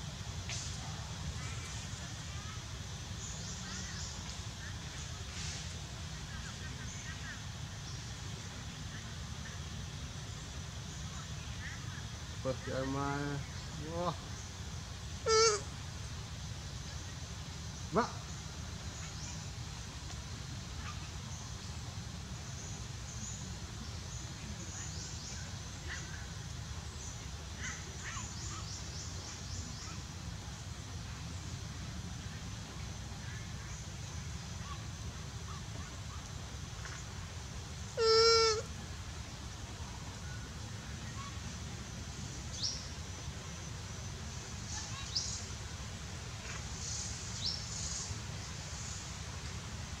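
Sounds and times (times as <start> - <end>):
faint high hiss: 0.0 - 50.0
short animal calls: 15.2 - 15.7, 37.9 - 38.7.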